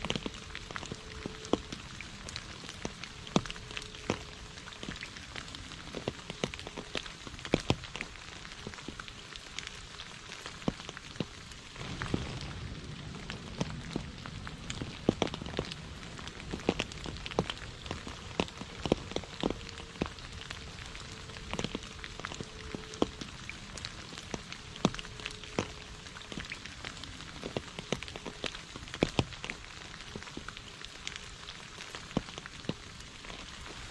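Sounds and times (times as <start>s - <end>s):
rain on puddles and leaves: 0.0s - 33.9s
water splashes: 0.0s - 33.9s
low rumble: 11.7s - 27.1s.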